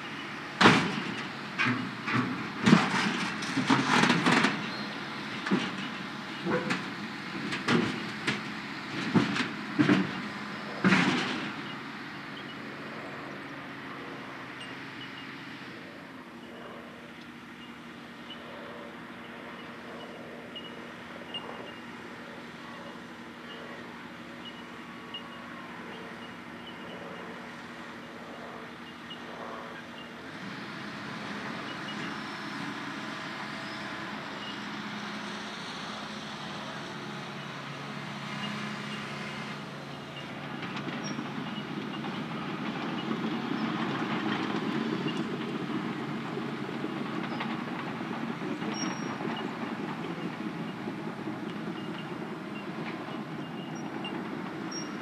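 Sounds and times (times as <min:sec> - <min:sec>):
excavator diesel engine revving: 0:18.4 - 0:55.0
crawler tracks clanking: 0:35.2 - 0:55.0.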